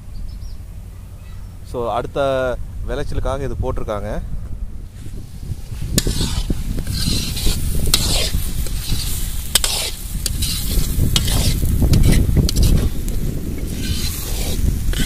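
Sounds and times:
gravy sizzling in an iron pan: 5.8s - 15.0s
metal ladle scraping a pan: 5.8s - 15.0s.

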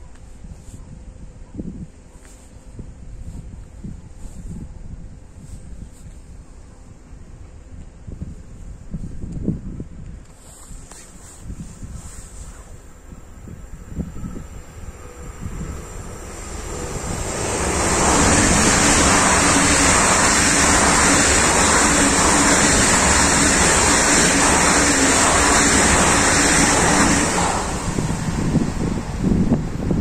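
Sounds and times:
train passing at speed: 12.7s - 30.0s.

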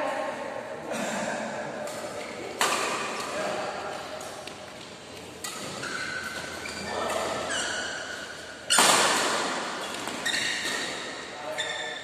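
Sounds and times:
rackets hitting shuttlecock: 1.8s - 11.3s
shoes squeaking on court floor: 3.9s - 12.0s.

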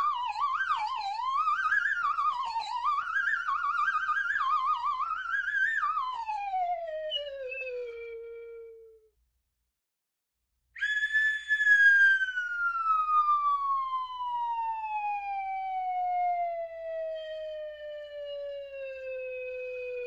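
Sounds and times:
cartoon falling whistle: 10.8s - 13.0s.

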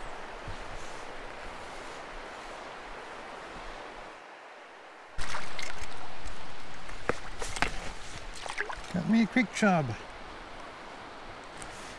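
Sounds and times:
river current rushing: 0.0s - 11.9s.

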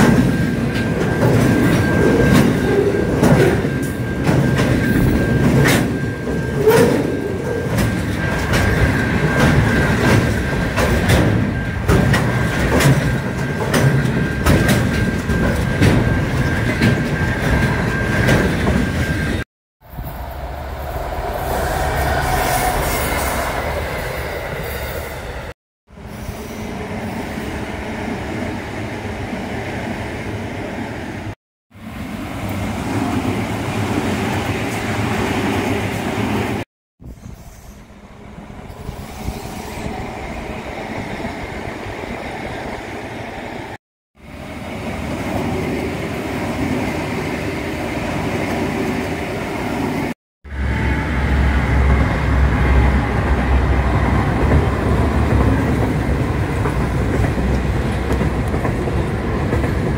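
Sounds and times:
distant passing trains: 0.0s - 59.9s
freight train rumble: 0.0s - 59.9s
high-pitched wheel squeal: 20.0s - 25.3s, 37.1s - 37.9s.

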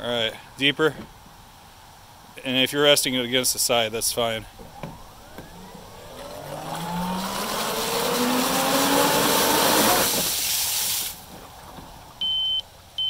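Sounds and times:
electric motor whine: 4.6s - 10.3s
water blasting from nozzle: 5.0s - 11.3s.

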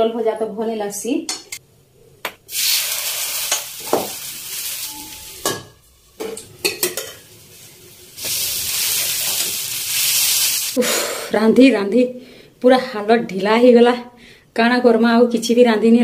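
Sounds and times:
batter sizzling in hot oil: 2.5s - 5.4s, 7.0s - 10.8s.

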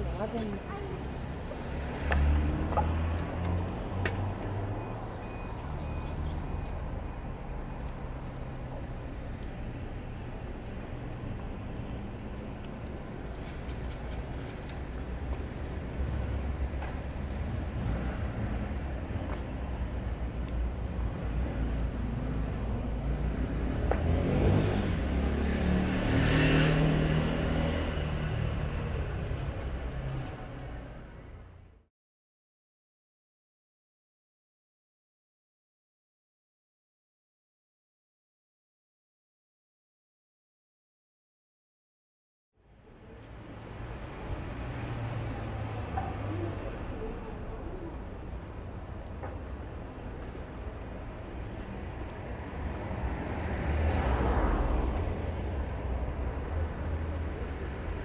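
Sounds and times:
street traffic rumbling: 0.0s - 31.9s, 42.6s - 58.0s
faint high beeps: 4.7s - 7.4s.

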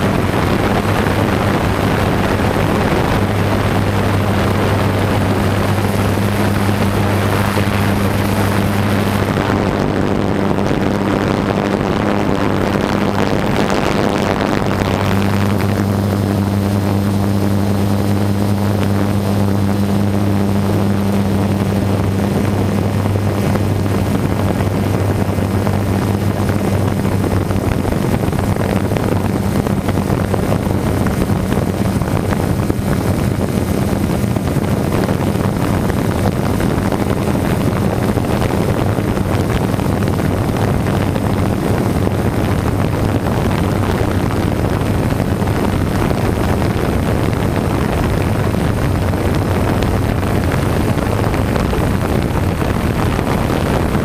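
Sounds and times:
drone motors droning: 0.0s - 43.2s
rushing air noise: 0.0s - 54.0s.

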